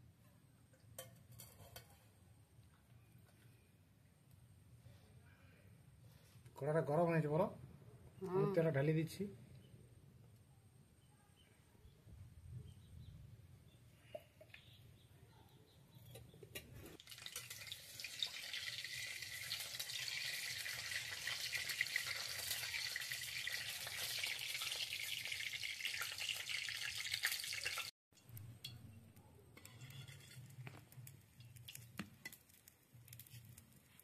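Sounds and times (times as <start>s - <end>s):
hot oil sizzling: 17.0s - 28.4s, 29.6s - 34.0s
spatula stirring in pan: 29.6s - 33.6s.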